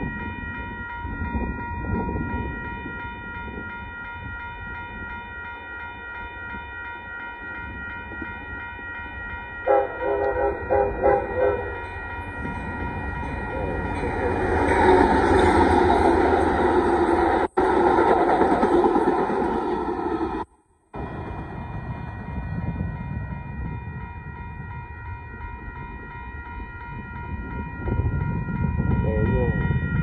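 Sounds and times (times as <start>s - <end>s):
railroad crossing bell ringing: 0.0s - 30.0s
train rumble: 0.0s - 30.0s
train horn short blasts: 9.6s - 11.8s.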